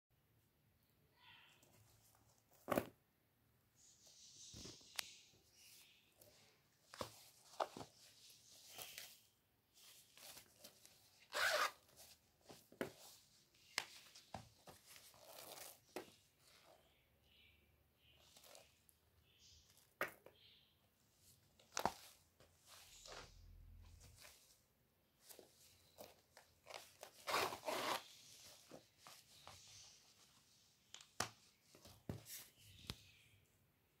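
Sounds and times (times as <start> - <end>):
cloth and beads rustling: 5.6 - 16.8.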